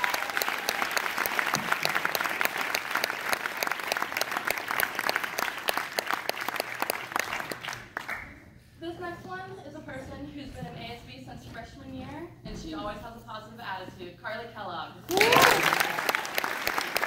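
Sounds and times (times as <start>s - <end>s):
audience applauding: 0.0s - 8.4s, 15.1s - 17.0s.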